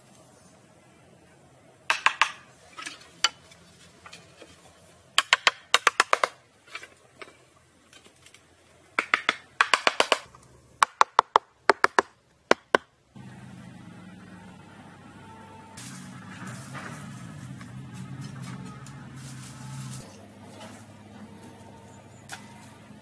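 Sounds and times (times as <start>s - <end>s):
low steady hum: 0.0s - 5.2s.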